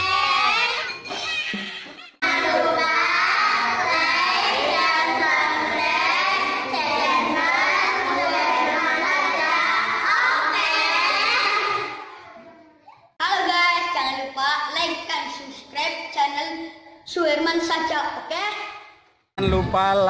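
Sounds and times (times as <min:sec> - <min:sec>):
girls singing together: 0:02.2 - 0:12.3.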